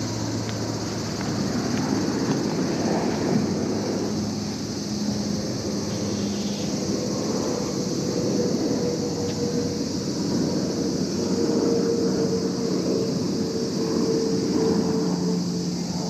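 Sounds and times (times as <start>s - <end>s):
high hiss: 0.0s - 16.0s
low hum drone: 0.0s - 16.0s.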